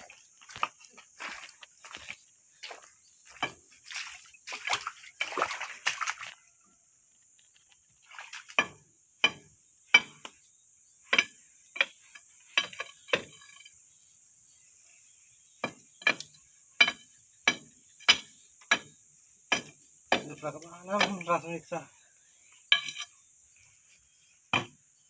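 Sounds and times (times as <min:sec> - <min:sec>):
metal rod scraping wet mud: 0:22.6 - 0:23.3.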